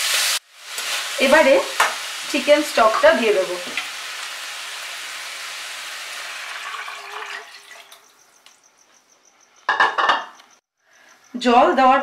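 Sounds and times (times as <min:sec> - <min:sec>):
vegetables sizzling in hot oil: 0:00.0 - 0:07.7
stock being poured: 0:06.0 - 0:08.0.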